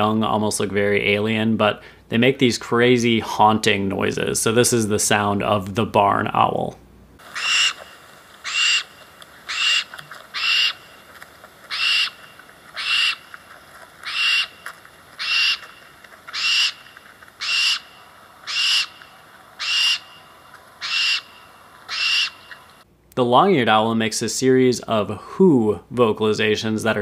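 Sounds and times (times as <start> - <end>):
owl hissing screeches: 7.2 - 10.9, 11.7 - 12.2, 12.8 - 13.3, 14.0 - 14.6, 15.2 - 15.7, 16.3 - 22.8.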